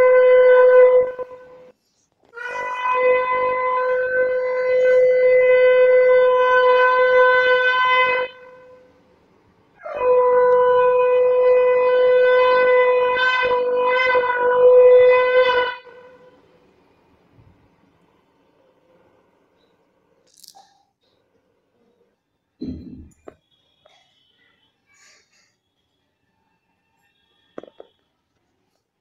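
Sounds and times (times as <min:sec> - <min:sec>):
conch shell blasts: 0:02.4 - 0:08.8.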